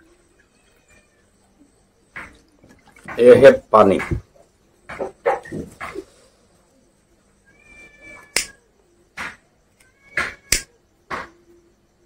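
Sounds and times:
faint thin steady tone: 0.0 - 4.9, 5.5 - 12.0
lighter click: 8.3 - 8.6, 9.8 - 10.7.

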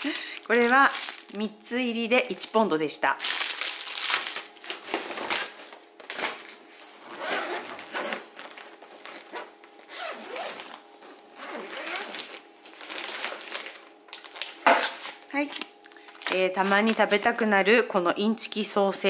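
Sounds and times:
zip pulled open: 7.1 - 8.2, 9.3 - 10.7, 11.4 - 12.3.

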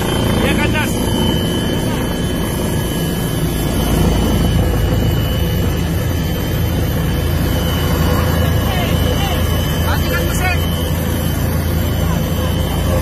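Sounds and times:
helicopter engine and rotor: 0.0 - 13.0
high whine: 0.0 - 13.0.

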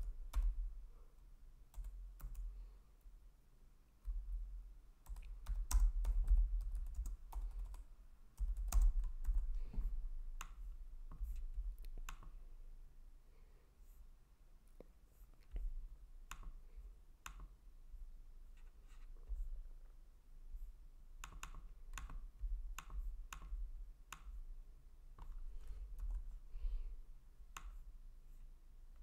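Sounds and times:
typing on computer keyboard: 1.7 - 2.5, 5.0 - 9.6, 21.2 - 24.4.

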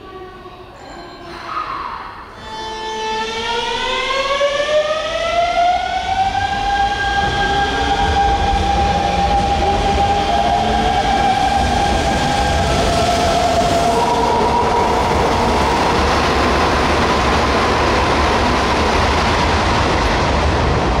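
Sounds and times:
electric train inverter whine: 4.2 - 21.0
wheels rumbling on rails: 6.2 - 21.0.

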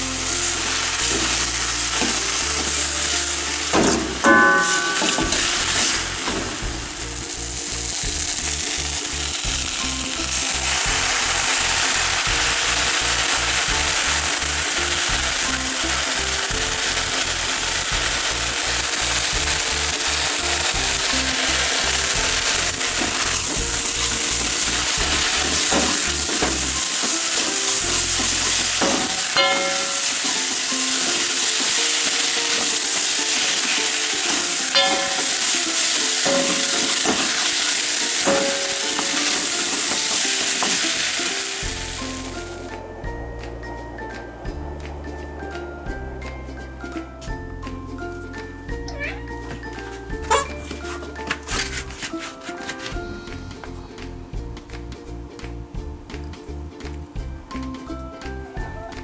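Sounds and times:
noodles sizzling in a wok: 0.0 - 43.0, 50.0 - 53.7.

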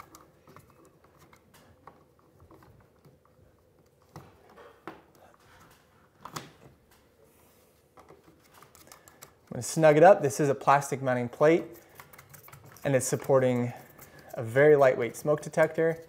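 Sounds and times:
screwdriver scraping and clicking: 11.7 - 14.8.

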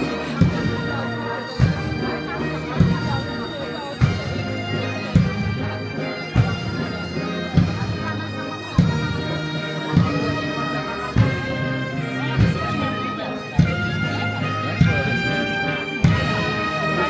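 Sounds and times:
bagpipes playing: 0.0 - 17.0.

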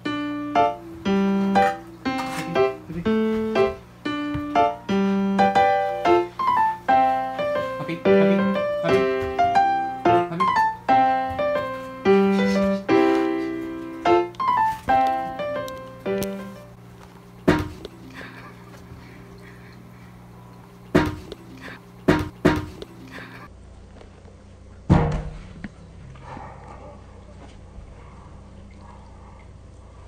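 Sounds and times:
light piano tune: 0.0 - 16.9.

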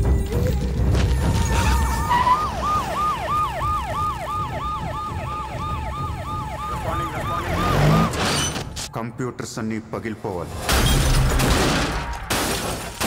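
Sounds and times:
police siren yelping: 1.4 - 8.2.

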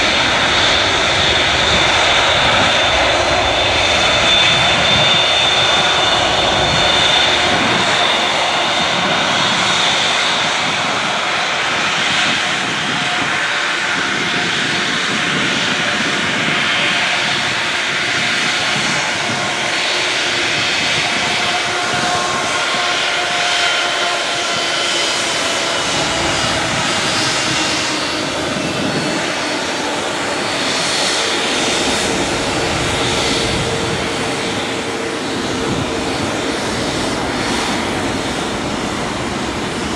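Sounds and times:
jet engines whining: 0.0 - 39.9.

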